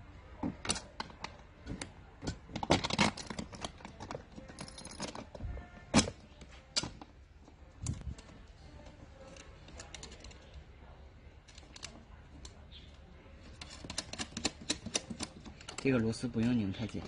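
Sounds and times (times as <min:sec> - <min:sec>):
sharp metal clicks and knocks: 0:13.5 - 0:16.0.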